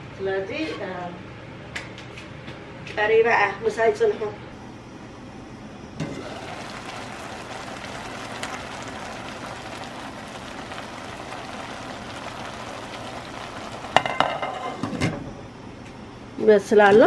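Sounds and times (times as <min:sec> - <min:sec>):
water bubbling in a pot: 0:06.0 - 0:14.7
glass lid knocking on pot rim: 0:14.0 - 0:14.8.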